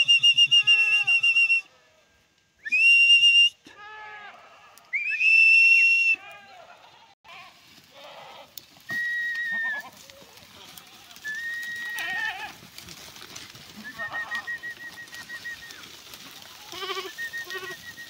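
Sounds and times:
person whistling high notes: 0:00.0 - 0:01.6, 0:02.6 - 0:03.6, 0:05.0 - 0:06.2
goats and sheep bleating: 0:03.7 - 0:05.0, 0:06.2 - 0:18.0.

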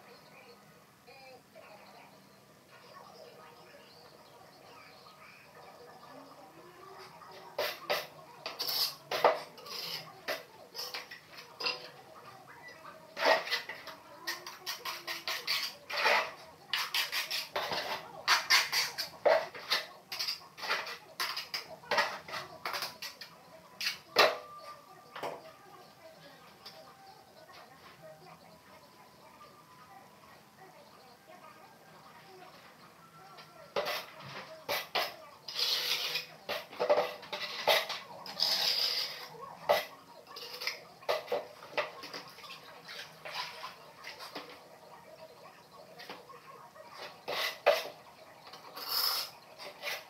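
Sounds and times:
rough scrapes: 0:07.6 - 0:10.1, 0:13.2 - 0:23.2, 0:33.7 - 0:41.5, 0:47.0 - 0:48.0, 0:48.6 - 0:50.0
tile pieces scraping and clicking: 0:34.7 - 0:39.8, 0:48.8 - 0:50.0.

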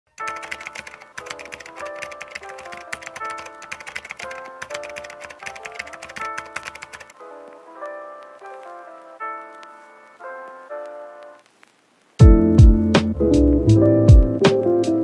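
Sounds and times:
keyboard typing clicks: 0:00.1 - 0:07.2
light melodic background music: 0:00.1 - 0:11.4, 0:12.2 - 0:15.0.

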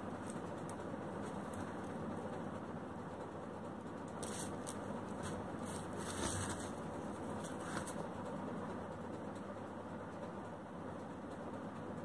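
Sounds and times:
cricket bat being handled: 0:04.1 - 0:08.1.

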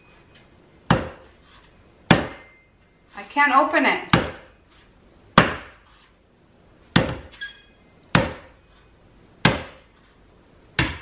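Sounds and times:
knife chopping coconut shell: 0:04.1 - 0:04.5, 0:05.4 - 0:05.8, 0:08.1 - 0:08.5, 0:09.4 - 0:09.9, 0:10.8 - 0:11.0.

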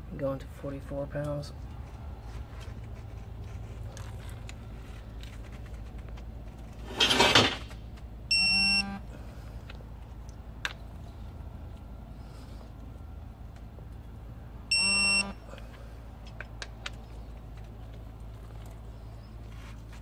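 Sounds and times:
torque wrench electronic beep: 0:08.3 - 0:09.0, 0:14.7 - 0:15.4.

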